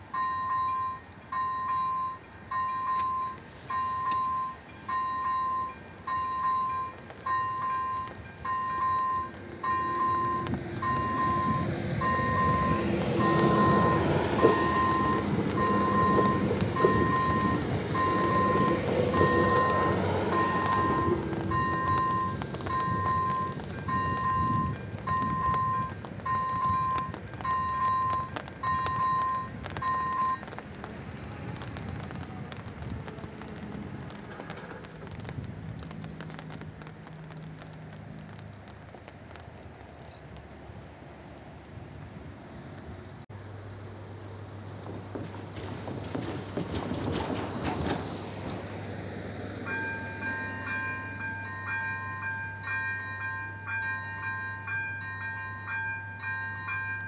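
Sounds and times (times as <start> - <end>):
wheels clacking on rail joints: 0.0 - 41.2, 44.7 - 57.0
noisy outdoor background: 0.0 - 57.0
train wheel rumble: 0.0 - 57.0
electronic crossing bell tone: 0.1 - 30.4, 49.6 - 57.0.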